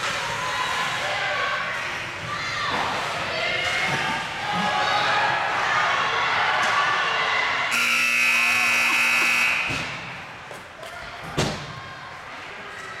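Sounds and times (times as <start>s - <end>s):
scoreboard horn blast: 7.7s - 9.9s.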